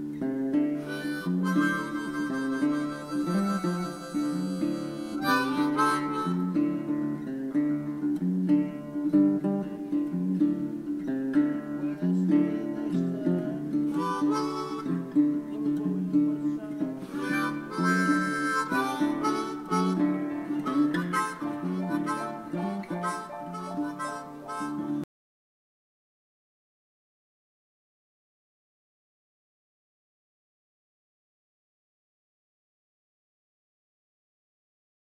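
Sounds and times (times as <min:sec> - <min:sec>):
harmonica over guitar: 0:00.8 - 0:10.5, 0:11.1 - 0:25.1.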